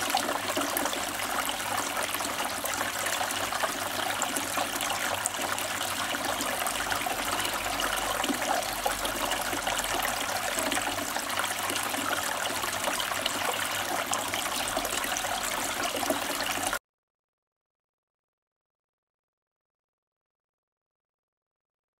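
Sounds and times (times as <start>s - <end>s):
water trickling and splashing: 0.0s - 16.8s.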